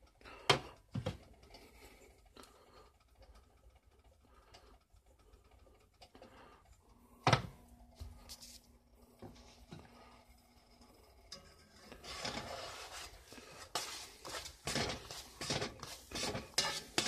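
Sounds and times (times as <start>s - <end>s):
eggs crackling in pan: 8.7s - 17.0s
spatula knocking against skillet: 13.7s - 17.0s.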